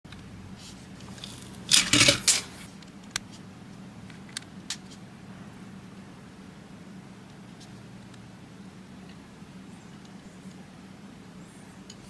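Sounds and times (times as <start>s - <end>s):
plastic pieces rattling and clicking: 1.1s - 2.6s.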